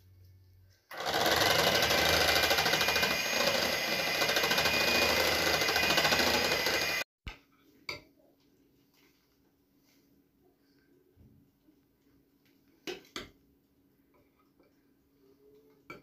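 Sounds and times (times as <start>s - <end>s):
electric hand mixer running: 0.9s - 7.1s.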